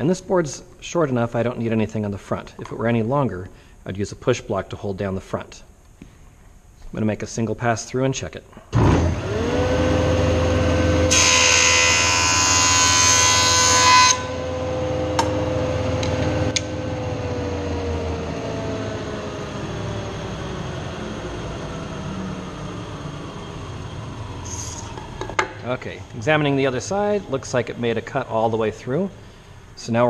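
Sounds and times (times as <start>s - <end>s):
jointer motor humming: 8.8s - 26.3s
cutterhead planing board: 11.0s - 14.5s.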